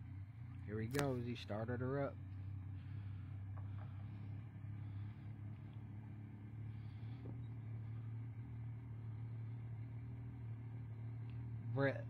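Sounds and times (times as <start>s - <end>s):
car engine idling: 0.0s - 12.0s.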